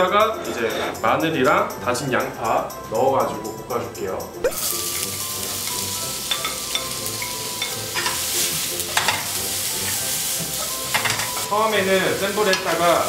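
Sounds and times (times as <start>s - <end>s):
garlic and onion sizzling in oil: 4.4s - 13.0s
spatula tapping pan: 4.9s - 11.5s.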